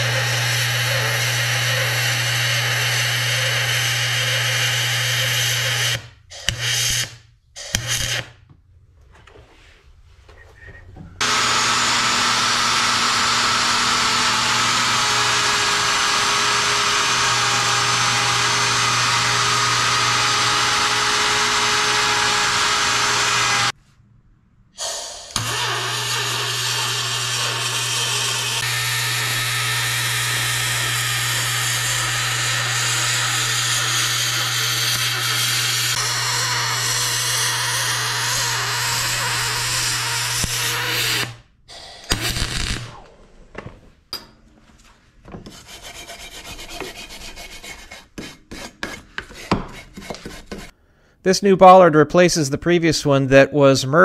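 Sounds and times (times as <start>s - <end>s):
router whining: 0.0s - 7.2s, 11.2s - 23.8s, 25.2s - 43.2s
welding arc buzzing: 0.0s - 8.4s, 11.2s - 23.8s, 25.1s - 43.2s.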